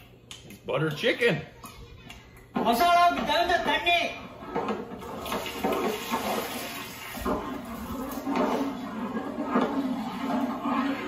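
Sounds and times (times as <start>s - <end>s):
ladle stirring pot: 4.1s - 11.0s.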